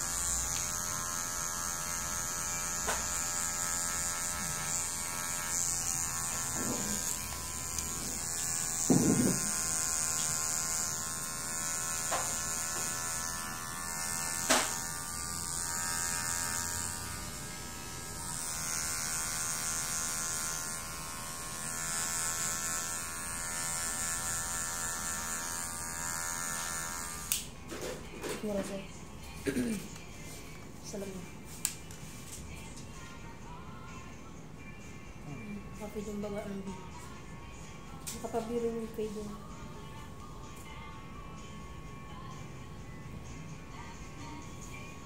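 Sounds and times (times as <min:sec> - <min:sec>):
electric hair clipper buzzing: 0:00.0 - 0:27.5.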